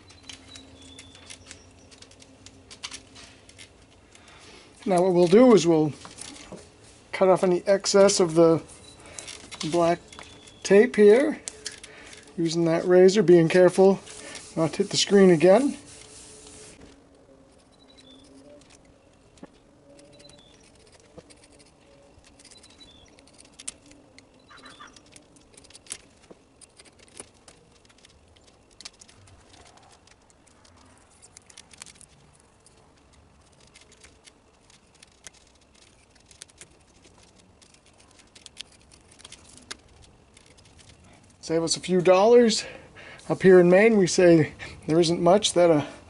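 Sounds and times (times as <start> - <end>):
faint bird chirps: 0.0 - 2.0, 10.1 - 10.8, 17.3 - 25.2
razor blade scratching tape: 19.8 - 41.0.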